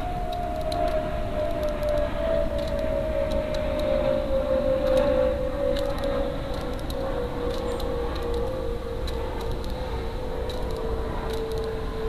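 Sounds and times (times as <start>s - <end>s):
steady tone falling in pitch: 0.0s - 12.0s
faint light clicks: 1.6s - 3.9s, 5.7s - 9.8s, 10.4s - 11.8s.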